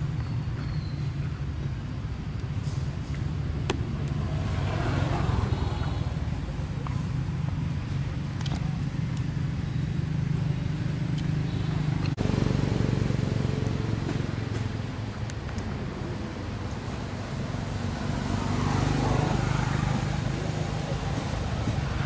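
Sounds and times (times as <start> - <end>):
engine humming: 0.0 - 22.0.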